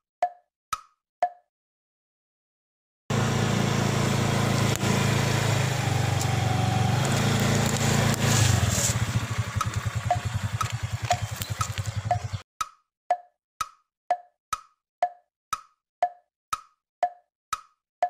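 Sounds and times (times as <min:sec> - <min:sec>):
motorcycle engine running: 0:03.1 - 0:12.4
sharp crack: 0:04.4 - 0:12.3
tyre crushing plastic cups: 0:07.0 - 0:09.0.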